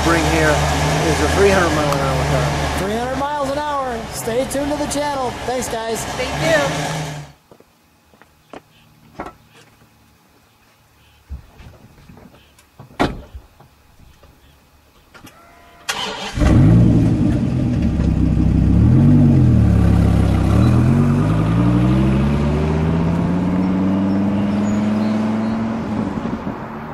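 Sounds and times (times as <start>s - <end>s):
car engine revving: 0.0s - 7.4s, 15.9s - 26.9s.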